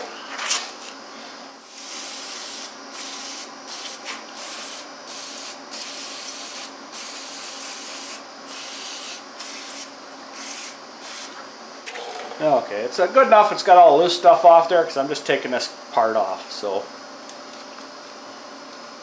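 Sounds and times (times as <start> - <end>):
aerosol spray hissing: 1.6 - 11.3.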